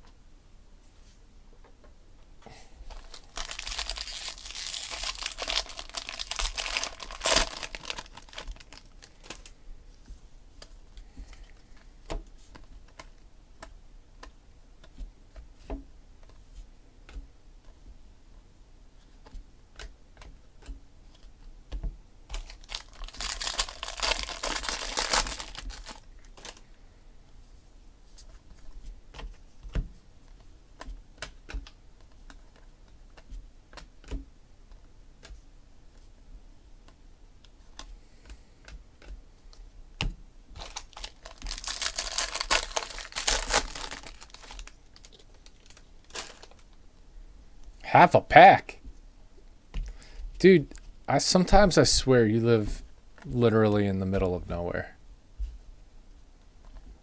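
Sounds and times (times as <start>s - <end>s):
foil wrapper crinkling: 2.9s - 9.5s, 22.3s - 26.6s, 40.6s - 46.7s.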